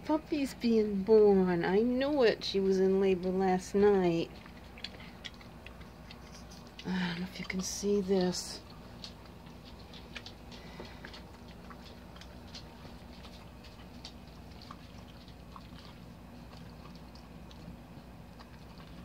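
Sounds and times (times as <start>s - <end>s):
steady low hum: 0.0s - 19.0s
wet mouth clicks and smacks: 4.3s - 7.5s, 8.6s - 17.8s.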